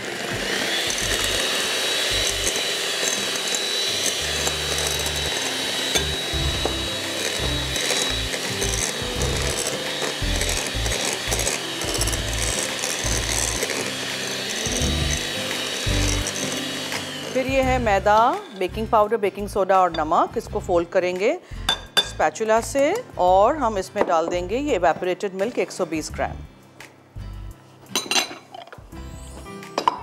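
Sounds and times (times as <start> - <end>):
hand mixer motor whining: 0.0 - 19.1.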